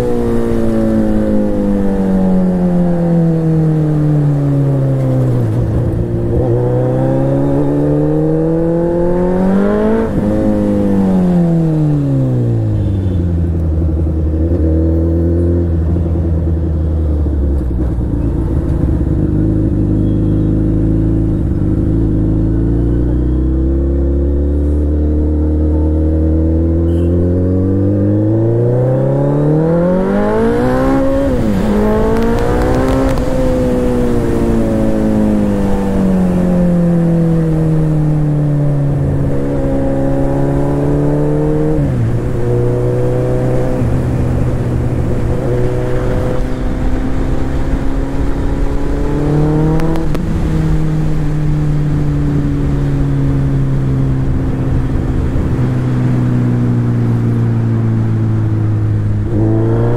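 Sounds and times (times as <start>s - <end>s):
engine changing speed: 20.6s - 36.4s, 38.7s - 59.9s.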